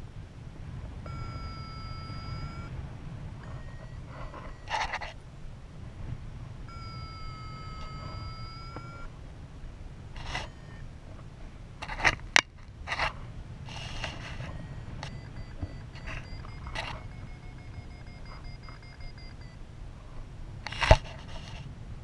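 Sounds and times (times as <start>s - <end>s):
variometer long rising tone: 10.3s - 10.9s, 14.3s - 19.6s.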